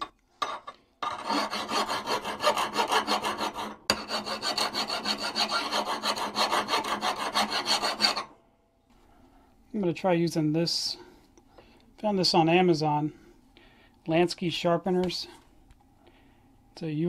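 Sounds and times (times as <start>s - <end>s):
hand file rasping on steel: 1.0s - 8.3s.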